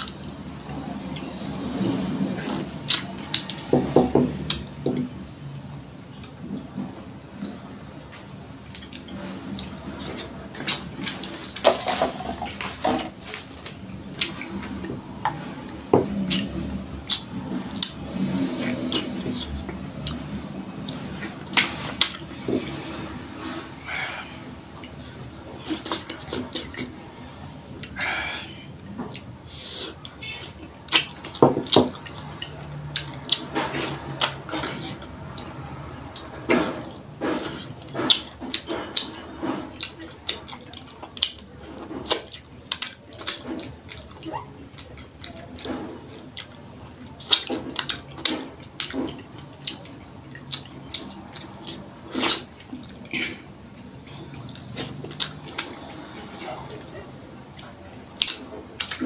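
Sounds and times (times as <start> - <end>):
squelchy chewing: 6.1 - 23.6, 24.2 - 59.0
lip smacks: 47.2 - 56.9.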